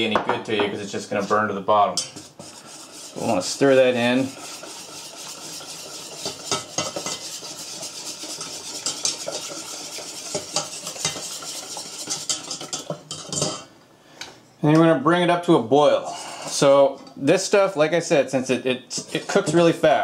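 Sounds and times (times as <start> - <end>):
whisk scraping a saucepan: 0.8 - 13.7, 18.9 - 19.8.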